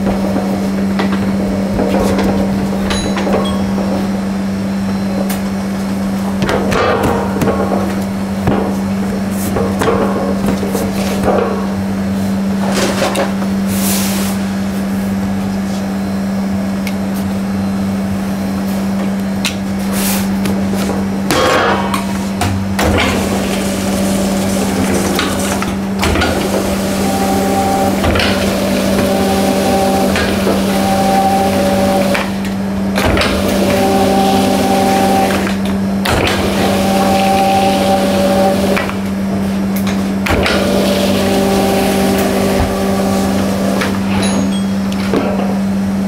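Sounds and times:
steady machine hum: 0.0 - 46.0
dough sheeter motor: 16.5 - 46.0.

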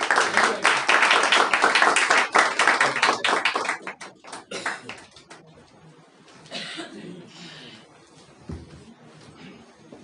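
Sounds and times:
group applause: 0.0 - 5.4.

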